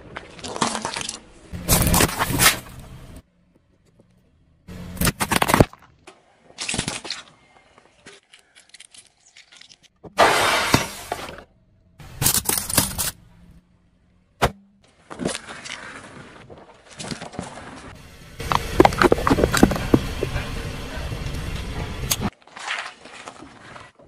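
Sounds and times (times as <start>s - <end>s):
tyre crushing small objects: 0.0s - 2.8s, 4.9s - 7.4s, 12.0s - 13.2s, 15.0s - 20.4s, 22.3s - 24.0s.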